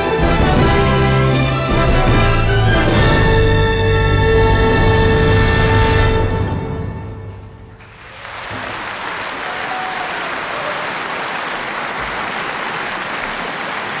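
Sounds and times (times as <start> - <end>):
audience applause: 7.8 - 14.0.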